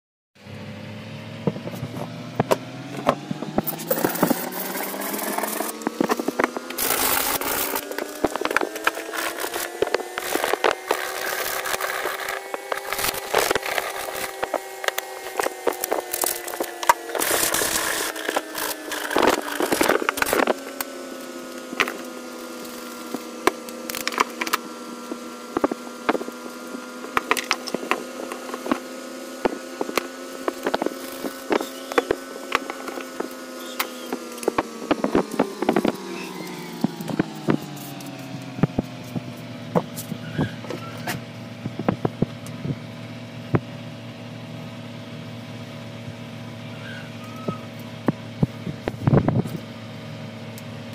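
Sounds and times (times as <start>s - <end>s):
steady motor hum: 0.4s - 50.9s.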